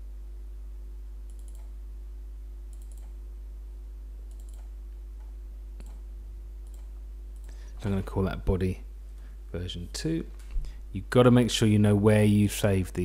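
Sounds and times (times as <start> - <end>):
low electrical hum: 0.0 - 13.0
computer mouse clicking: 1.3 - 1.7, 2.7 - 3.2, 4.3 - 6.0, 6.6 - 7.6.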